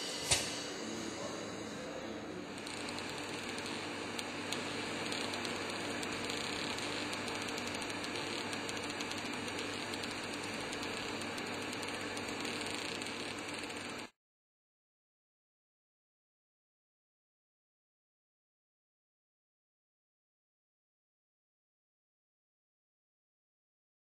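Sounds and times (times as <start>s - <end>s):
low steady hum: 0.0s - 12.4s
receipt printer whirring and ticking: 2.4s - 14.1s.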